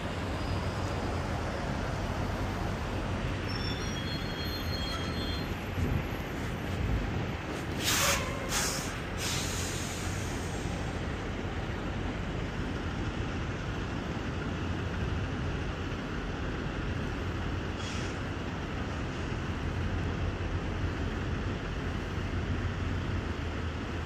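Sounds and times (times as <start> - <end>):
diesel truck engine running: 0.0 - 24.0
air hisses: 7.7 - 10.8.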